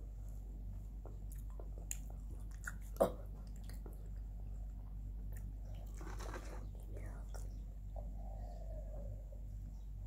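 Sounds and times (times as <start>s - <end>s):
steady low hum: 0.0s - 10.0s
chewing and wet mouth sounds: 1.0s - 7.5s.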